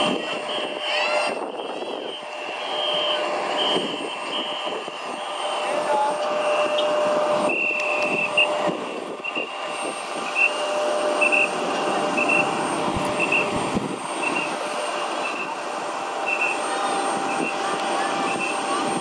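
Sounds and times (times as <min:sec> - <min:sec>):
airport apron rumble: 0:00.0 - 0:19.0
vehicle warning beeper: 0:10.3 - 0:11.6, 0:12.2 - 0:12.5, 0:13.2 - 0:13.6, 0:14.2 - 0:15.6.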